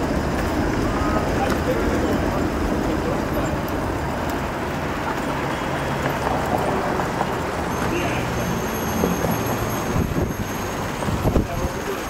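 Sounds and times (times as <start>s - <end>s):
low motor vehicle hum: 0.0s - 12.0s
street traffic noise: 0.0s - 12.0s.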